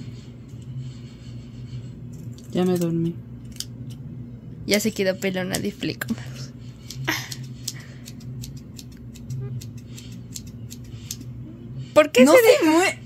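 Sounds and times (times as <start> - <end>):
steady low hum: 0.0 - 13.0
scissors snipping hair: 2.2 - 4.0, 6.8 - 11.3.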